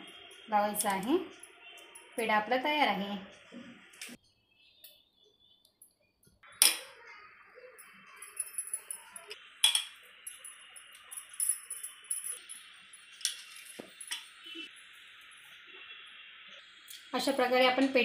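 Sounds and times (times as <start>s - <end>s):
faint metallic jingling: 10.1s - 14.2s.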